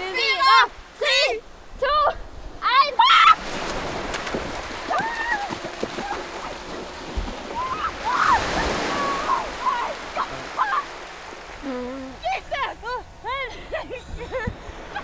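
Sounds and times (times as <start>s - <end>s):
small waves washing: 0.0s - 15.0s
people splashing in water: 3.2s - 11.8s.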